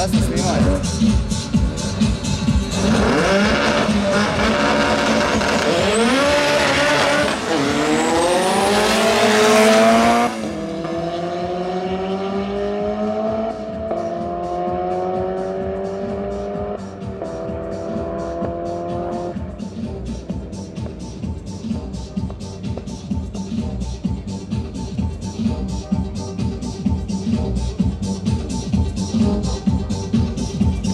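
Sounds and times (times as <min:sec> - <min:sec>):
car engines revving through gears: 0:00.0 - 0:21.0.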